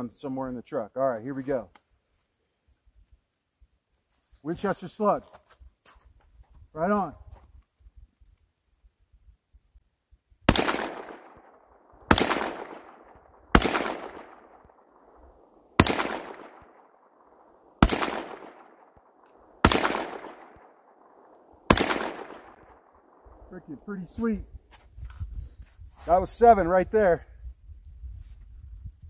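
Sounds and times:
shotgun shots with echo: 0:10.5 - 0:15.1, 0:15.7 - 0:24.1.

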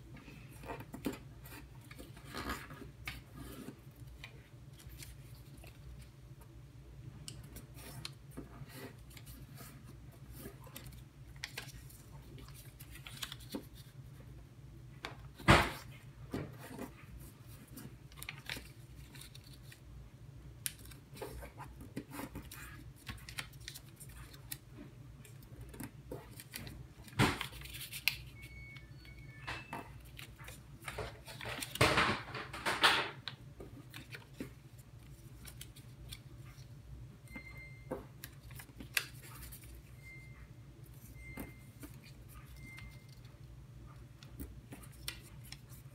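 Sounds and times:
paper crinkling and rustling: 0:00.4 - 0:06.2, 0:07.5 - 0:14.2, 0:15.3 - 0:19.9, 0:20.6 - 0:28.5, 0:29.5 - 0:32.7, 0:33.6 - 0:36.8, 0:38.2 - 0:40.0, 0:44.2 - 0:45.9
paper crackling: 0:07.6 - 0:14.0, 0:17.2 - 0:19.8, 0:20.6 - 0:24.7.

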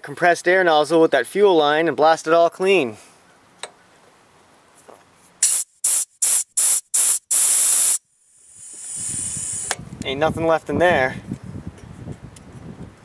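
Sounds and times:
compressed air blow gun hissing: 0:05.4 - 0:09.8.

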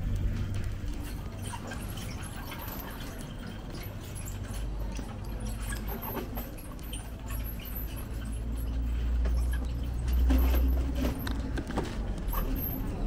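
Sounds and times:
low street rumble: 0:00.0 - 0:13.0
faint high squeaks: 0:01.0 - 0:13.0.

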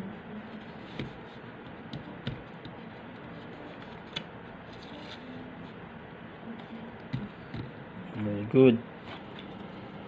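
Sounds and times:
fingers tapping on paper: 0:00.9 - 0:02.8, 0:07.1 - 0:07.8.

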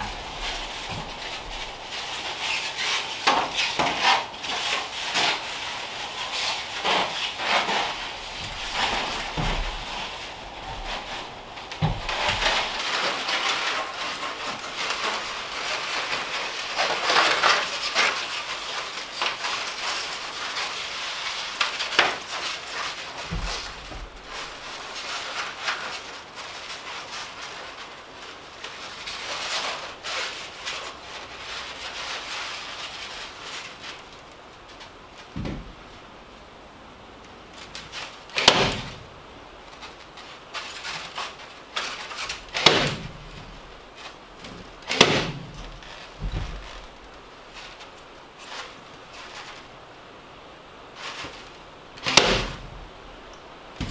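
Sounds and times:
dull thumps: 0:00.0 - 0:04.4, 0:06.2 - 0:15.3, 0:23.2 - 0:25.0, 0:35.3 - 0:36.0, 0:42.3 - 0:47.8, 0:52.0 - 0:53.9
vent baffle scraping against wood: 0:00.0 - 0:36.0, 0:37.6 - 0:50.0, 0:50.8 - 0:53.9
knocks on wood: 0:35.4 - 0:35.8.

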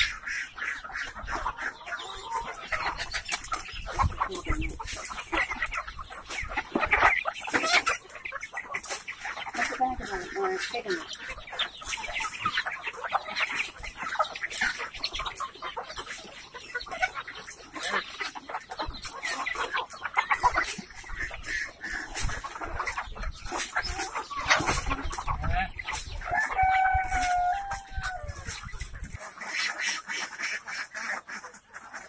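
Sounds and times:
beaks pecking at the ground: 0:00.0 - 0:27.8, 0:28.4 - 0:32.0
chickens clucking: 0:00.0 - 0:32.0
rooster crowing: 0:26.3 - 0:28.4.

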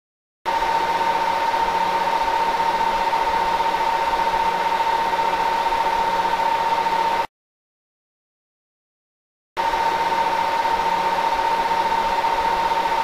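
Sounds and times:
machine drone with high whine: 0:00.5 - 0:07.3, 0:09.6 - 0:13.0.

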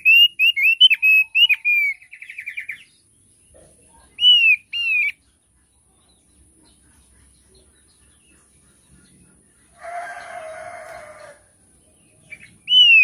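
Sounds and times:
bird whistling: 0:00.0 - 0:02.9, 0:04.2 - 0:05.2, 0:12.3 - 0:13.0
bird trill: 0:00.0 - 0:03.1, 0:04.0 - 0:13.0.

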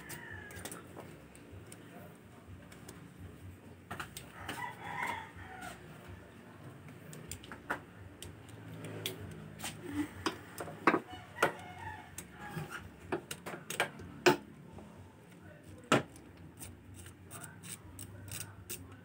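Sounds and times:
rooster crowing: 0:00.0 - 0:00.8, 0:04.3 - 0:06.3, 0:10.9 - 0:12.9
sharp clicks and knocks of parts: 0:06.9 - 0:09.4, 0:13.1 - 0:14.5.

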